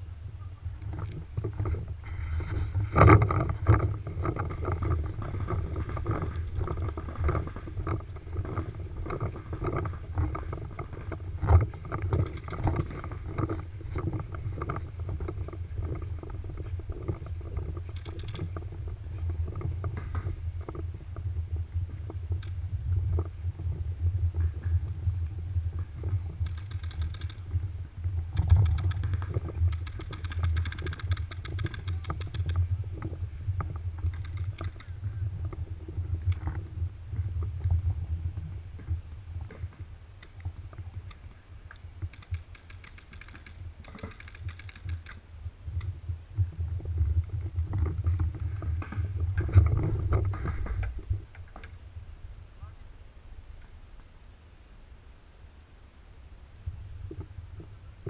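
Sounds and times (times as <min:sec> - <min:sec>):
wind rumble on microphone: 0:00.0 - 0:54.2, 0:55.0 - 0:58.0
rapid paintball marker fire: 0:26.4 - 0:27.4, 0:28.4 - 0:32.6, 0:42.1 - 0:45.2.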